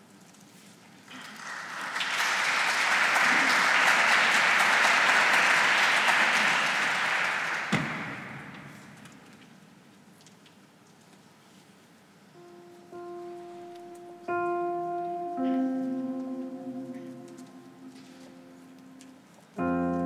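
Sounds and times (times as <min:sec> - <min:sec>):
audience applauding: 0:01.1 - 0:09.2
thump: 0:07.7 - 0:08.8.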